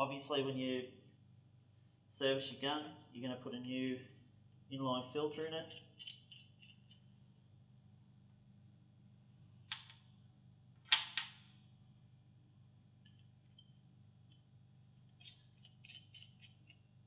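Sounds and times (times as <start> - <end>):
faint steady hum: 0.0 - 17.0
metal parts clicking: 5.7 - 7.0, 15.0 - 16.8.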